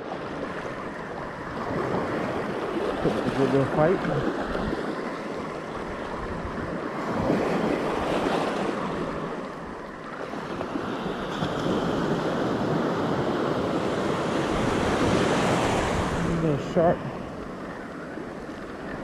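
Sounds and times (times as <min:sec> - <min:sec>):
ocean surf on beach: 0:00.0 - 0:19.0
wind buffeting microphone: 0:01.3 - 0:09.8.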